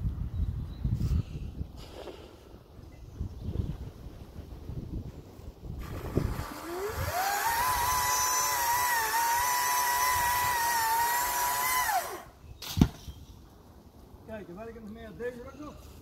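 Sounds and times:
chainsaw revving: 5.8 - 12.3
sharp thump: 12.6 - 13.2.

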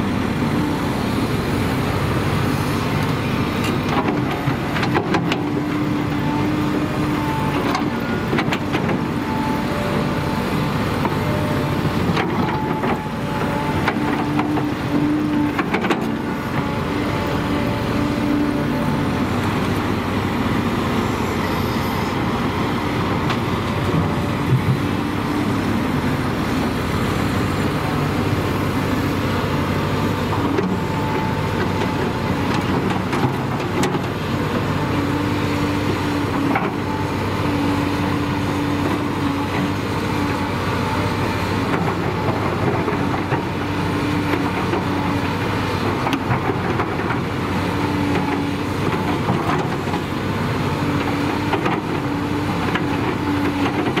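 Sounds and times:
excavator diesel engine: 0.0 - 54.0
hydraulic whine: 6.1 - 32.4.

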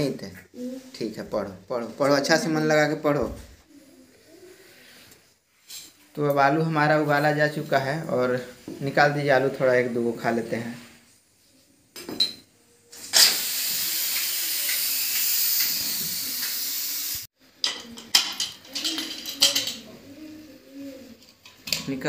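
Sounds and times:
pressure cooker steam hissing: 13.0 - 17.3.

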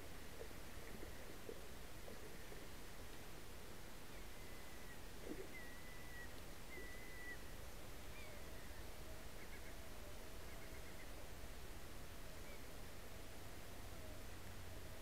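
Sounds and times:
thin whistled bird calls: 4.1 - 11.2.

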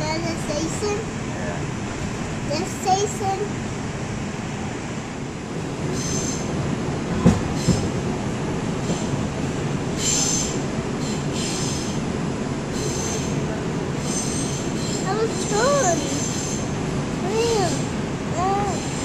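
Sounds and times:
subway train rumble: 0.0 - 19.0
wheels squealing on rails: 5.8 - 6.6, 7.2 - 8.0, 8.8 - 9.3, 9.9 - 12.1, 12.7 - 19.0.

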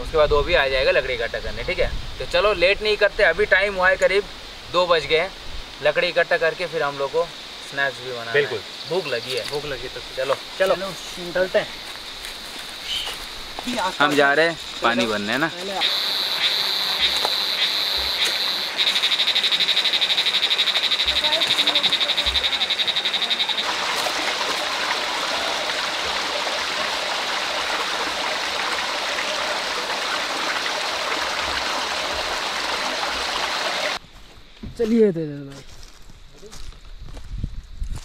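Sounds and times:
stream water rushing: 5.8 - 34.0
animal high-pitched pulsing trill: 15.7 - 23.7.

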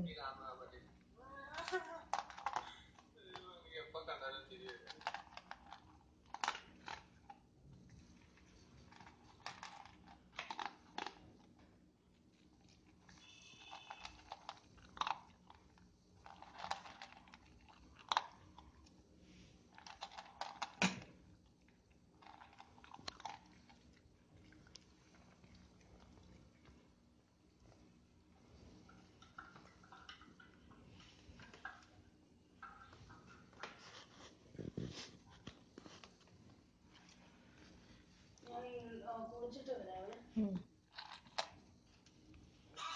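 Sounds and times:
dog crunching dry kibble: 4.5 - 27.0, 40.9 - 42.1.

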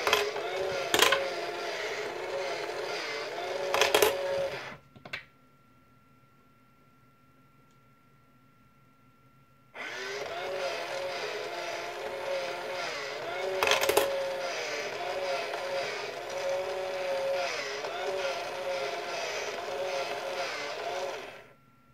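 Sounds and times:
motor and gears whirring: 0.0 - 4.8, 9.8 - 21.5.

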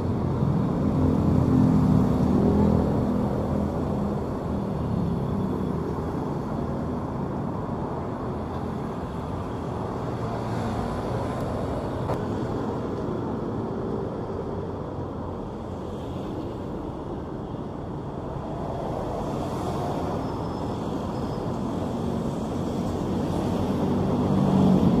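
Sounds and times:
car and motorcycle engines: 0.0 - 16.0.

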